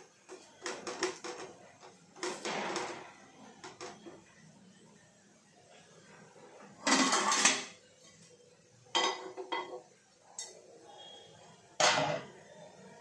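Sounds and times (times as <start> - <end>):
dishes and utensils clattering: 0.2 - 4.2, 6.6 - 7.8, 8.9 - 10.6, 11.8 - 12.4.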